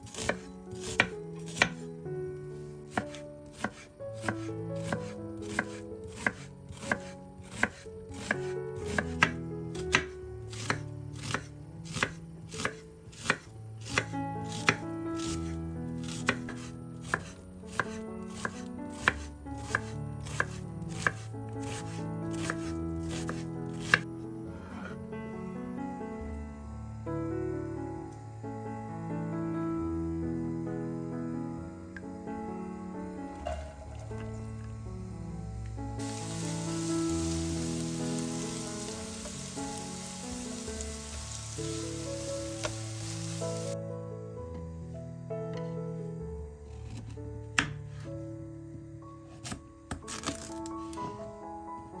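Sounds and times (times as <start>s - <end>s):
background music: 0.0s - 52.0s
knife chopping on cutting board: 0.1s - 1.8s, 2.9s - 24.0s, 47.6s - 47.8s
food sizzling in oil: 36.0s - 43.8s.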